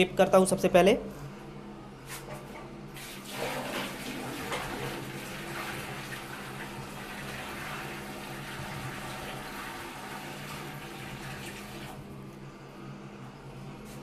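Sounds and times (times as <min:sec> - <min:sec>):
water pouring into toilet bowl: 0:03.0 - 0:12.0.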